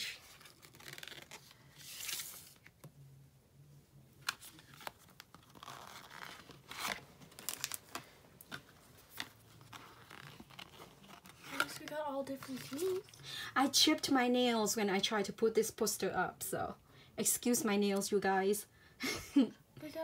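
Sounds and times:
cardboard and cards rustling: 0:00.0 - 0:02.9, 0:04.2 - 0:13.2.

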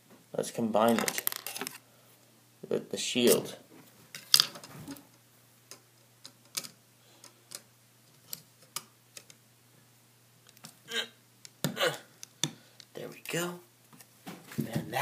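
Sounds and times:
plastic pieces clicking and tapping: 0:00.9 - 0:01.8, 0:05.7 - 0:09.4.

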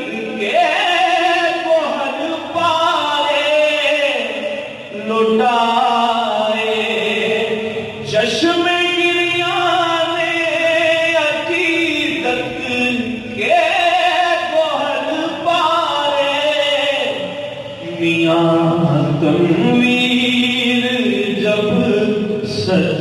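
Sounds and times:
man singing into microphone: 0:00.0 - 0:23.0.

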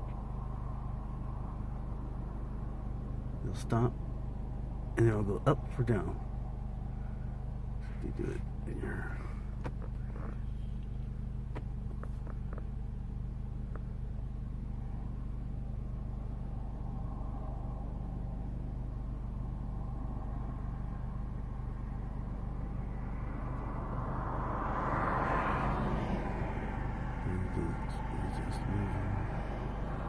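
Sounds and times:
low mechanical hum: 0:00.0 - 0:30.0
vehicle rushing past: 0:15.9 - 0:30.0.

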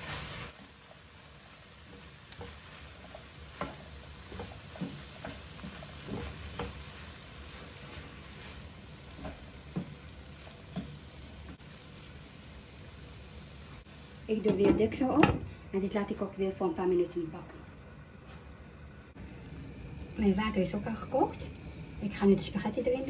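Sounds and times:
wooden spoon scraping a pan: 0:00.0 - 0:11.6
food sizzling in a pan: 0:00.0 - 0:23.0.

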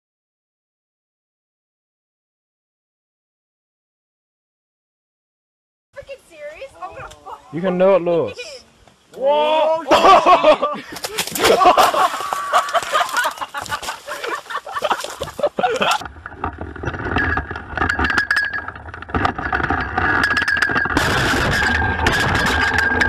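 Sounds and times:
people shouting: 0:09.2 - 0:10.1.

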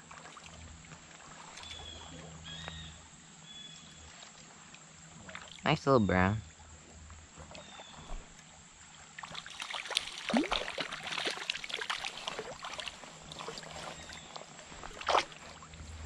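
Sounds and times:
stream flowing: 0:00.0 - 0:16.0
fish splashing and thrashing: 0:09.0 - 0:16.0.

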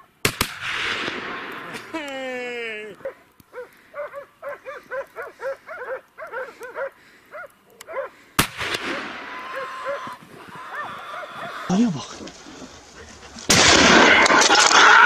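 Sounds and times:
rifle shot with echo: 0:00.2 - 0:01.8, 0:08.4 - 0:09.3, 0:13.5 - 0:14.4
dogs barking: 0:03.0 - 0:08.2, 0:08.9 - 0:13.5.

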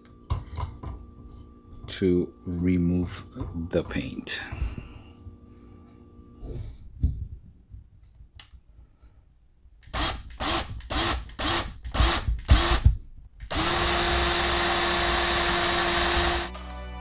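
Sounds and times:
electric drill spinning: 0:09.8 - 0:16.5.

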